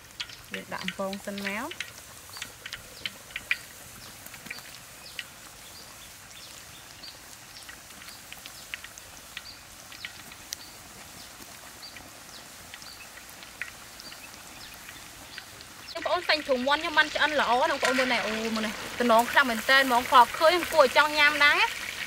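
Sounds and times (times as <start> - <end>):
chicken deep-frying in oil: 0.0 - 22.0
crackling pops of oil: 0.0 - 22.0.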